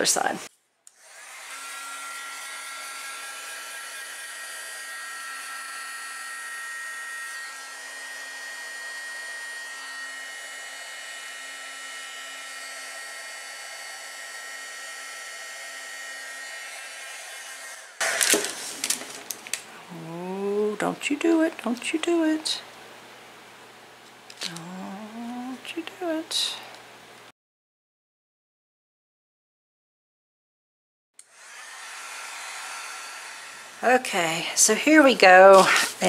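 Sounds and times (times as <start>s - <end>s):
heat gun blowing air: 0.9s - 19.0s, 31.2s - 36.0s.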